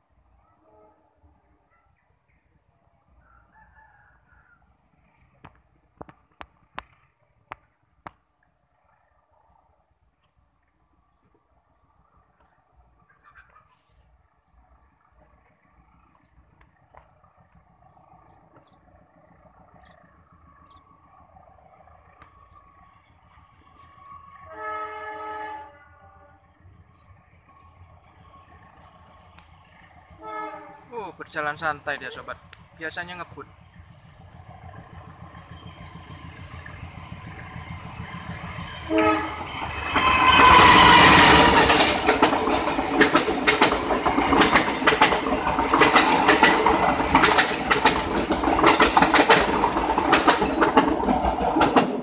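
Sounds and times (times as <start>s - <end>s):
train horn blast: 0.5s - 1.3s, 24.4s - 26.4s, 30.2s - 30.9s, 38.8s - 41.8s
rooster crowing: 3.2s - 4.7s.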